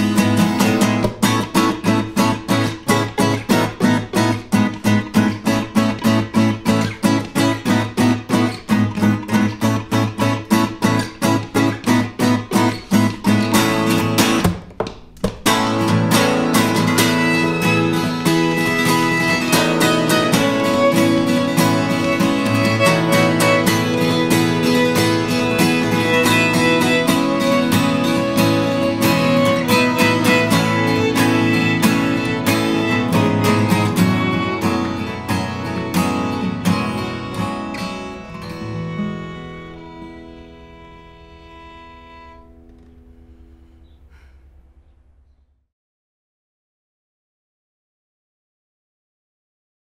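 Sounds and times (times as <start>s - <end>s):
acoustic guitars strumming: 0.0s - 44.9s
violin long bowed notes: 16.8s - 43.6s.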